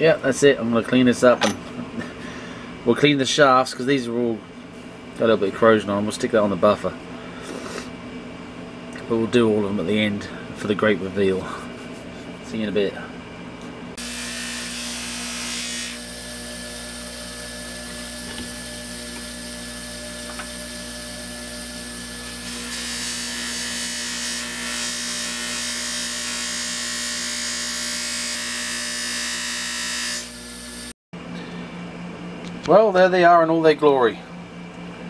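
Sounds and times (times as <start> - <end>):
bench grinder humming: 14.0 - 30.9.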